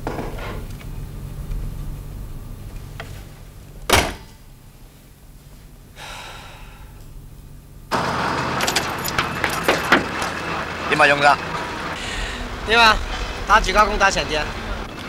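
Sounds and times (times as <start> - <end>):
street traffic: 7.9 - 15.0.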